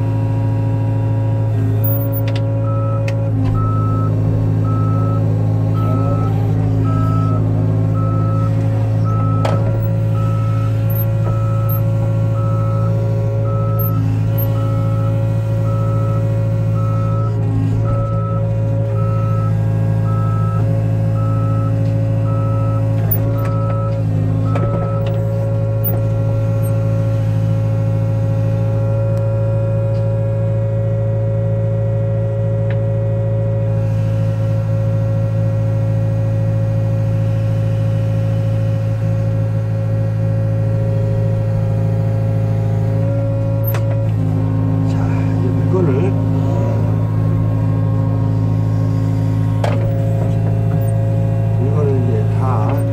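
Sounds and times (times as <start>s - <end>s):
crane engine running: 0.0s - 52.9s
high warning beep: 9.1s - 14.8s.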